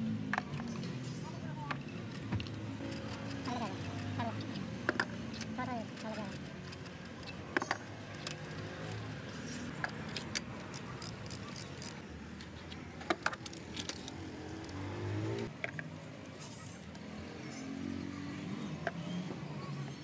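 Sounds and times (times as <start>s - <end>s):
ratchet wrench clicking: 1.7s - 15.5s.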